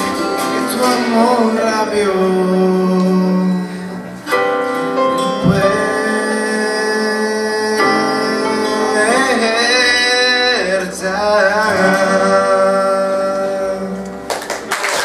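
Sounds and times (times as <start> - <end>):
instrumental accompaniment: 0.0 - 14.7
man singing pop ballad: 0.4 - 4.0, 5.4 - 14.2.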